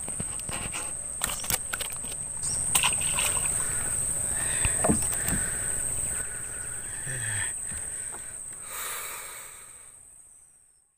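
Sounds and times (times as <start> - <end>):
high-pitched insect drone: 0.2 - 10.0
small splashes in water: 1.4 - 3.8.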